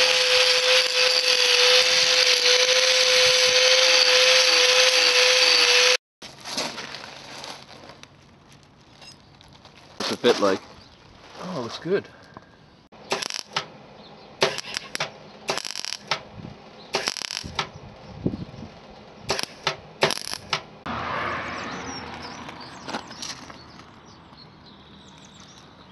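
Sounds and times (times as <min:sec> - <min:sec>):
welding arc crackling: 0:00.0 - 0:06.0, 0:13.1 - 0:13.7, 0:14.4 - 0:16.3, 0:16.9 - 0:17.8, 0:19.3 - 0:20.7.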